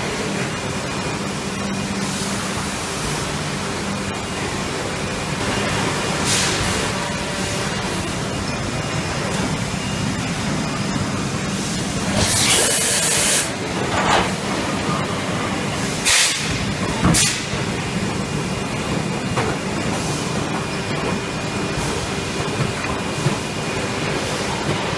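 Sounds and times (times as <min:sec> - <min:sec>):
moulding machine humming: 0:00.0 - 0:24.9
compressed air hissing: 0:06.2 - 0:06.8, 0:11.6 - 0:13.6, 0:15.8 - 0:17.6.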